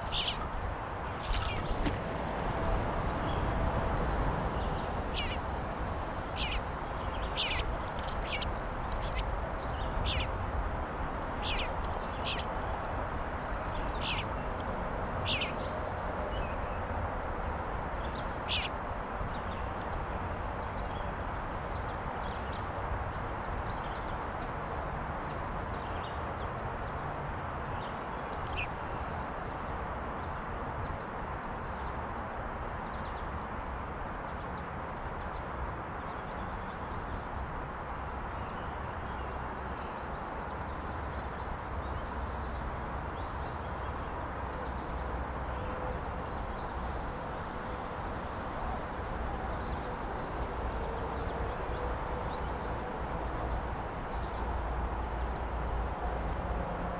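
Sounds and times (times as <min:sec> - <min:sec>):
bird calls: 0:00.0 - 0:00.4, 0:05.1 - 0:05.4, 0:06.3 - 0:06.6, 0:07.2 - 0:09.4.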